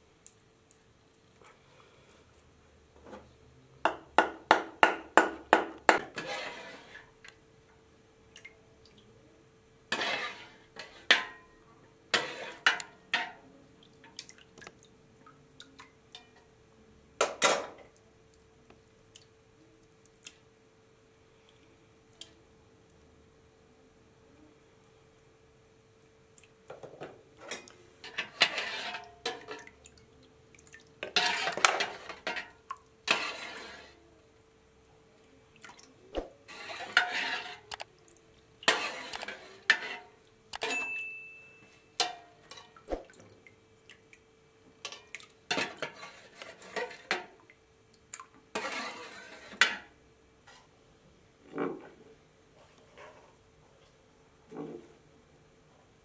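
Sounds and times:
metal spoon scraping a pot: 6.0 - 7.1, 9.9 - 11.5, 12.1 - 13.4, 27.5 - 29.6, 31.0 - 34.0, 36.5 - 37.8, 38.7 - 40.9, 44.9 - 47.3, 48.5 - 49.9
liquid splashing and dripping: 13.8 - 16.4, 29.3 - 33.0, 35.5 - 36.4, 42.4 - 45.4, 47.2 - 48.4.

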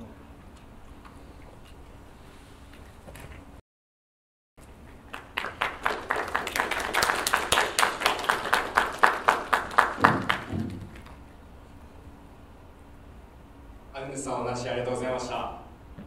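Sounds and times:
small group applauding: 4.8 - 11.2.

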